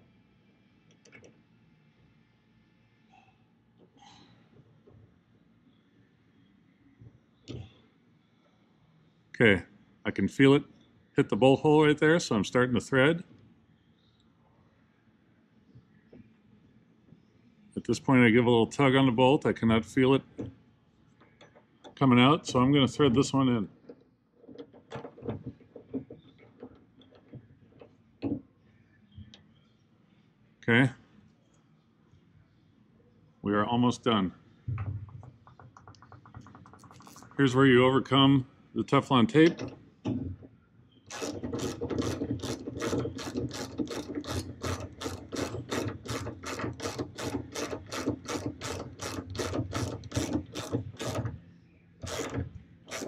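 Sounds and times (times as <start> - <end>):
hand ratchet clicking: 41.1 - 51.3, 52.0 - 53.0.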